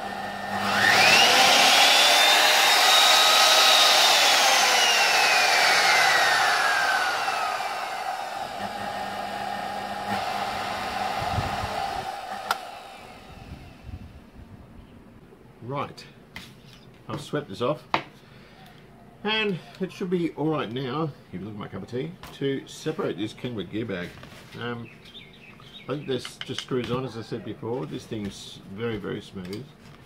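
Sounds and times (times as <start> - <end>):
electric motor whining: 0.0 - 14.2.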